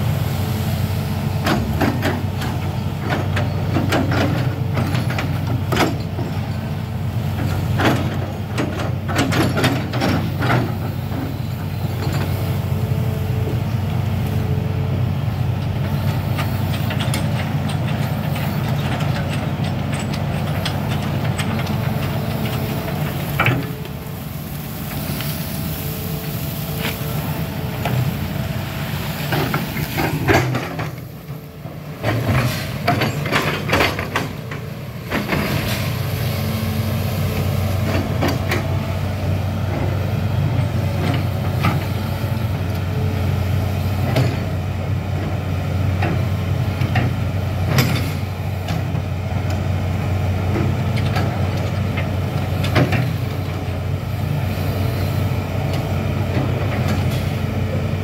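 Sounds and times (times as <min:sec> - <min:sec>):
excavator diesel engine humming: 0:00.0 - 0:58.0
excavator bucket knocking and clanking: 0:01.4 - 0:12.4, 0:15.6 - 0:24.0, 0:29.2 - 0:35.9, 0:43.9 - 0:45.3, 0:45.9 - 0:49.1, 0:50.5 - 0:53.7.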